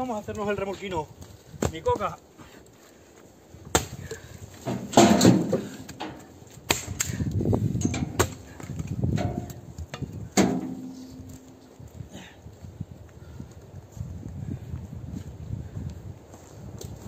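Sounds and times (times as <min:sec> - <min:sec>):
twigs crackling and rustling: 0:00.0 - 0:13.9
axe chopping branches: 0:03.6 - 0:09.7, 0:10.4 - 0:11.6.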